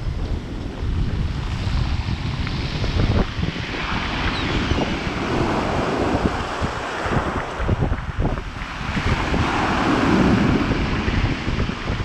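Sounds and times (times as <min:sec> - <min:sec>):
wind buffeting microphone: 0:00.0 - 0:12.0
waves breaking on pebbles: 0:03.5 - 0:11.9.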